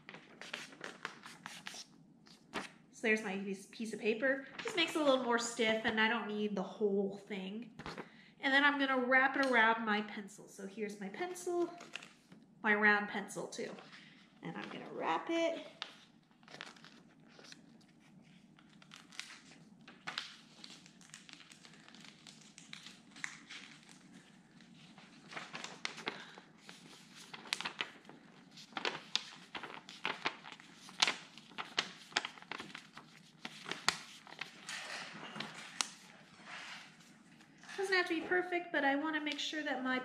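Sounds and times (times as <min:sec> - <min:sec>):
paper crinkling: 0:00.0 - 0:02.8, 0:04.5 - 0:05.3, 0:11.6 - 0:12.4, 0:13.6 - 0:37.9.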